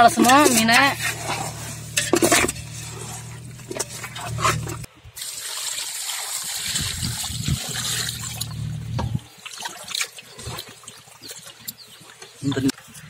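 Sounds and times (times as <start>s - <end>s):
water swishing and splashing: 0.0s - 13.0s
water pouring into pot: 5.2s - 8.6s
hands squelching fish: 6.0s - 13.0s.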